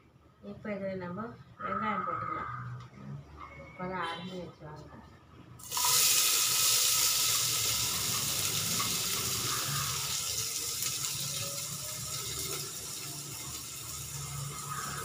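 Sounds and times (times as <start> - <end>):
onions sizzling in hot oil: 5.6 - 15.0.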